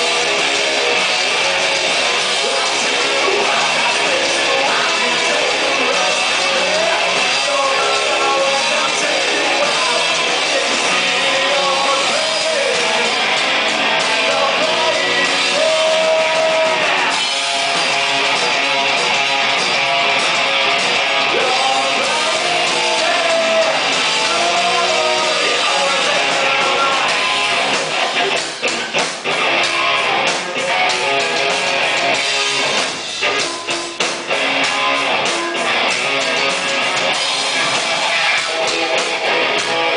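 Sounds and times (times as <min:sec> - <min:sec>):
live rock band playing: 0:00.0 - 0:39.9
person singing: 0:02.3 - 0:13.2, 0:14.0 - 0:17.2, 0:21.3 - 0:27.6.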